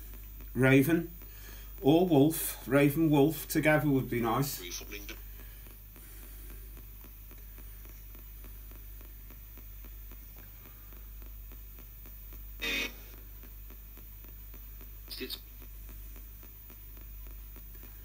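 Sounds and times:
radio static hiss with ticks: 0.0s - 18.0s
burst of radio sound: 12.6s - 13.1s, 15.1s - 15.4s.

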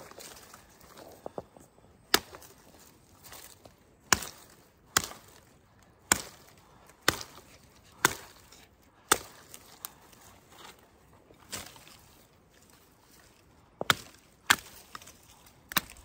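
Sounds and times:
knife chopping into wood: 13.8s - 15.1s.

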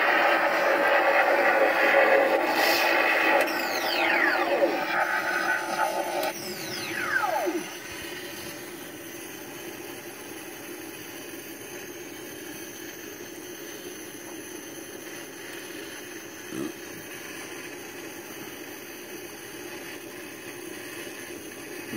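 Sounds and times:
electronic whine falling in pitch: 0.0s - 10.2s
electronic idle hum: 0.0s - 21.9s.

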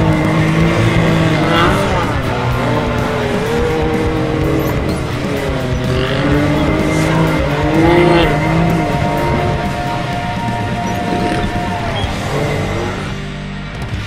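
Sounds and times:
engine revving: 0.0s - 14.0s
music playing: 0.0s - 14.0s.

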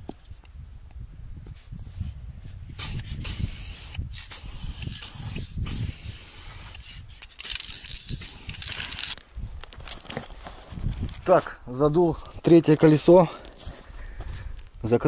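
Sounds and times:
aerosol spray can hissing: 2.7s - 9.2s.

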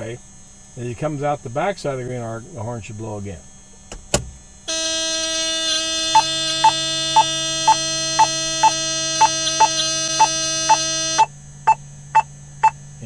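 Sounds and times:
warning horn pulsing tone: 4.7s - 11.8s.

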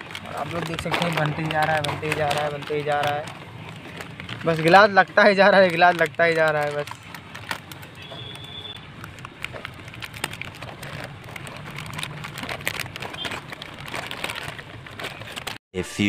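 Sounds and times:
plastic cups clicking and crinkling: 0.0s - 15.6s.

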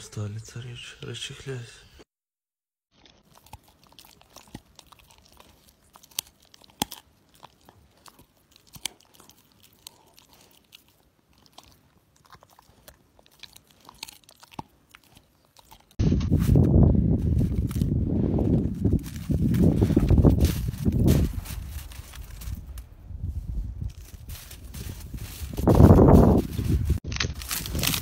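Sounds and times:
dog chewing and crunching: 2.9s - 16.0s, 17.3s - 17.9s, 18.5s - 22.8s, 23.9s - 28.0s.

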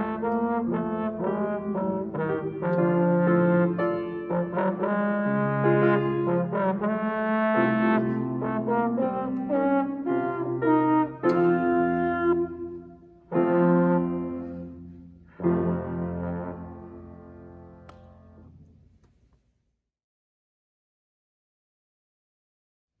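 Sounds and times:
trombone melody: 0.0s - 18.4s
piano accompaniment: 0.0s - 18.7s.

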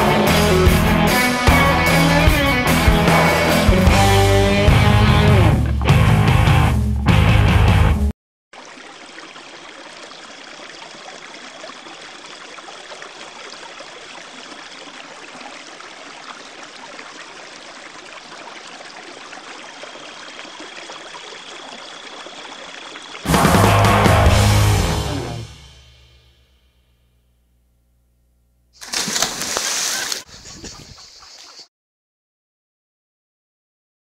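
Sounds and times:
loud rock music: 0.0s - 8.1s, 23.3s - 26.4s
water trickling: 8.6s - 23.3s.

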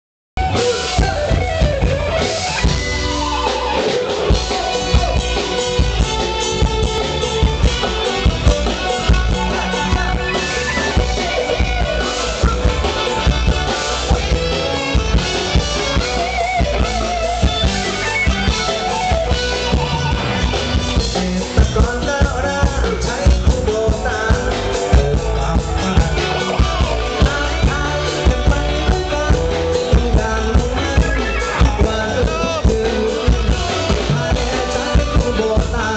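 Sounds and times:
drum kit: 0.4s - 35.9s
electric guitars: 0.4s - 35.9s
person singing: 0.5s - 16.3s, 21.0s - 35.9s.

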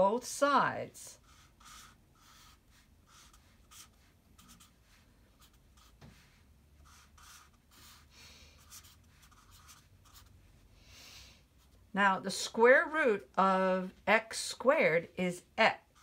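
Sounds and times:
marker scratching on paper: 1.2s - 10.5s, 15.7s - 16.0s.

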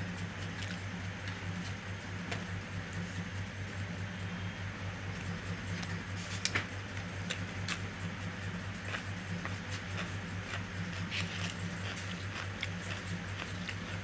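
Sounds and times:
steady low hum: 0.0s - 14.0s
chewing with mouth clicks and smacks: 0.4s - 1.7s, 8.7s - 14.0s.

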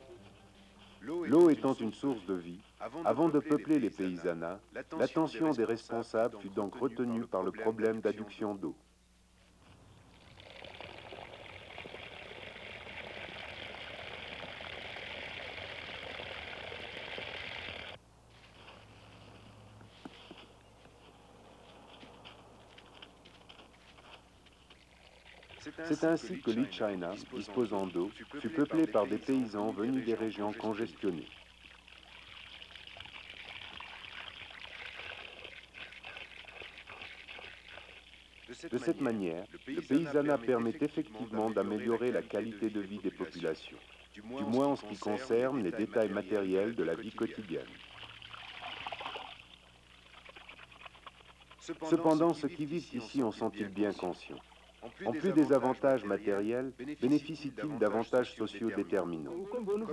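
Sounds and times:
water pouring into a pot: 10.1s - 18.0s, 24.6s - 56.2s.

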